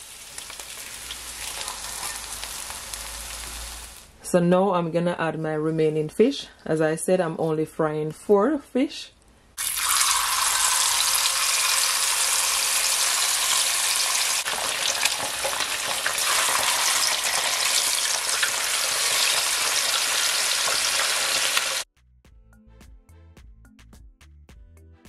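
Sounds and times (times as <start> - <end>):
fish sizzling in hot oil: 0.0 - 4.1, 9.6 - 21.9.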